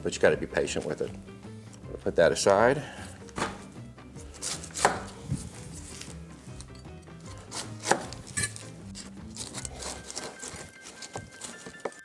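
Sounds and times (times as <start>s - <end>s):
knife cutting pineapple rind: 4.2s - 12.0s.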